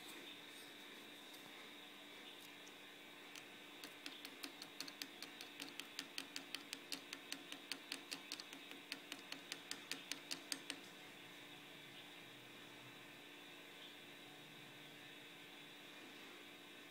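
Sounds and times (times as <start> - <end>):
plastic rod tapping crystal: 3.4 - 10.8.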